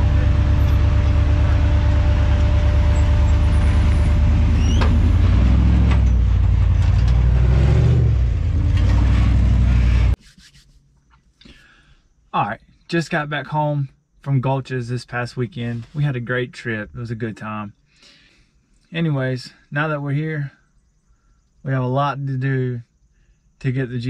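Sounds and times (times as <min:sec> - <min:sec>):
buggy engine running under load: 0:00.0 - 0:10.2
rising squeal: 0:00.0 - 0:10.2.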